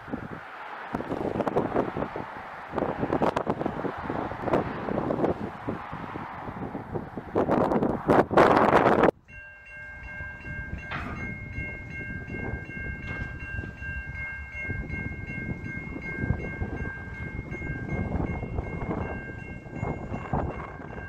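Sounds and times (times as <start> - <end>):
wind noise on microphone: 0.0 - 21.0
railroad crossing warning bell: 8.5 - 21.0.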